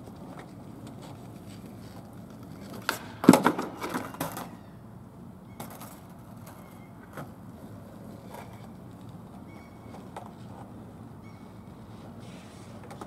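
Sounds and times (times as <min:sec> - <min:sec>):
skateboard slapping on asphalt: 0:00.0 - 0:04.5, 0:05.6 - 0:11.0
skateboard clattering: 0:00.0 - 0:04.6, 0:05.6 - 0:11.6.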